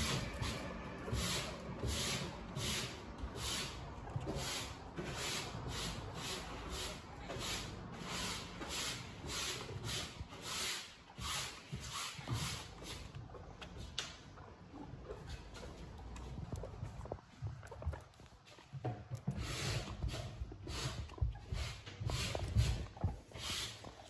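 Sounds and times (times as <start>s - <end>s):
hand brush sweeping fleece: 0.0s - 13.1s, 19.3s - 24.0s.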